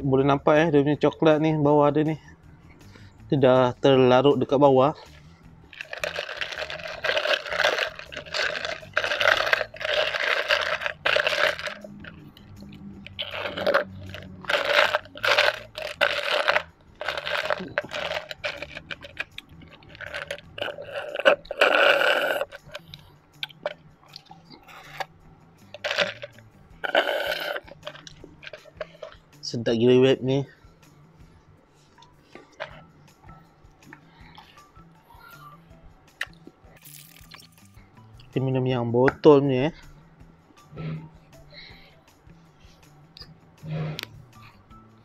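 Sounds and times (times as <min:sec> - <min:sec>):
ice cubes crunched and chewed: 0:05.7 - 0:25.1, 0:25.8 - 0:29.2, 0:32.4 - 0:32.8, 0:36.8 - 0:37.6
ice shifting in plastic cup: 0:05.8 - 0:12.2, 0:13.1 - 0:22.8, 0:25.8 - 0:26.3, 0:32.6 - 0:32.8.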